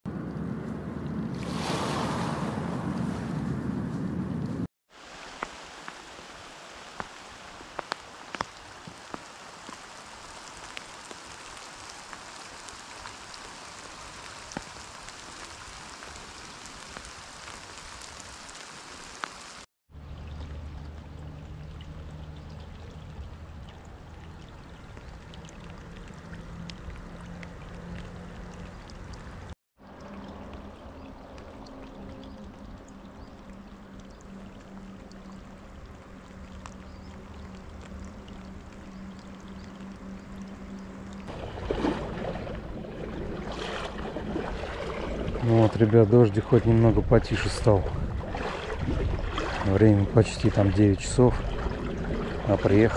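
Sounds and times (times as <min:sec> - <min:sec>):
steady rain falling: 0:04.9 - 0:19.7.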